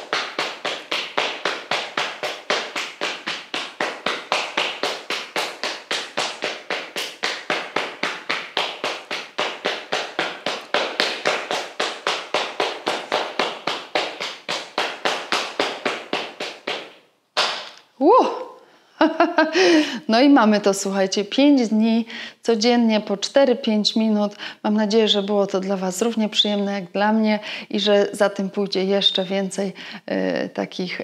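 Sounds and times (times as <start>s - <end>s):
palms slapping hips: 0.0s - 17.9s.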